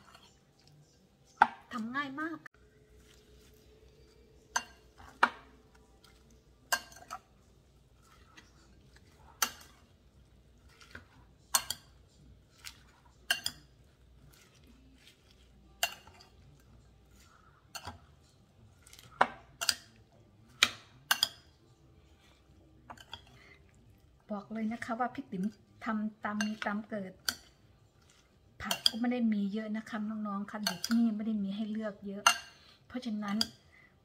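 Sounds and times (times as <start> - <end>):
spoon clinking in glass bowl: 6.7 - 7.3, 13.2 - 13.7, 15.7 - 16.4, 21.1 - 21.5.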